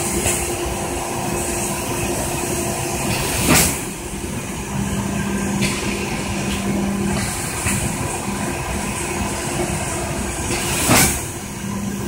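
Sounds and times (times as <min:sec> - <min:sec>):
loud burst of hiss: 0:09.3 - 0:11.6.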